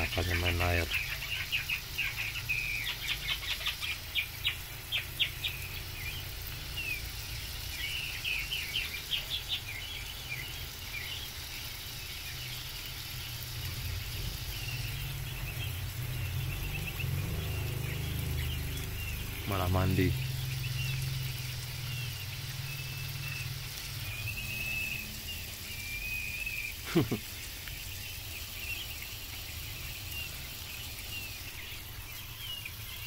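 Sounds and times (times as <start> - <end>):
quail chirping: 0.0 - 11.9.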